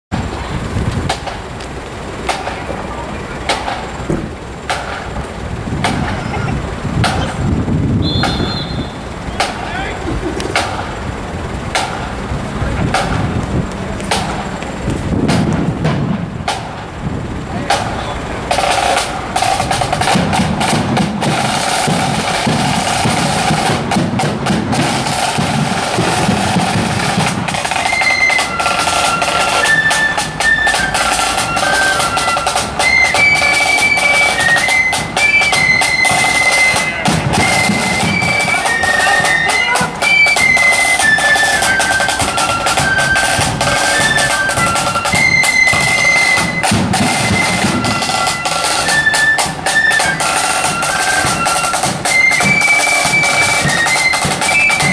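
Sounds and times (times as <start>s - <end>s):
bass drum beat: 2.1s - 11.0s
snare drum rolls: 3.5s - 11.0s, 12.8s - 13.4s, 14.0s - 16.9s, 17.6s - 54.9s
flutes playing high melody: 7.2s - 10.0s, 24.7s - 54.9s.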